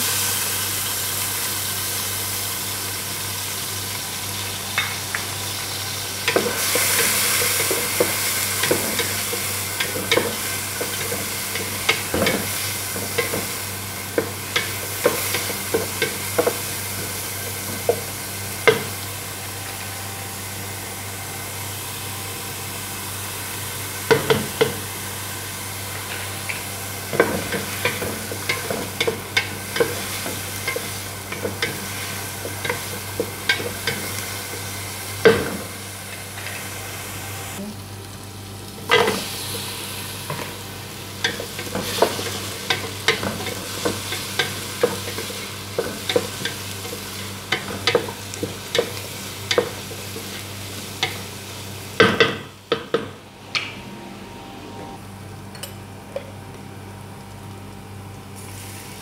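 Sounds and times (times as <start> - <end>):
onions sizzling in hot oil: 0.0 - 53.2, 57.0 - 59.0.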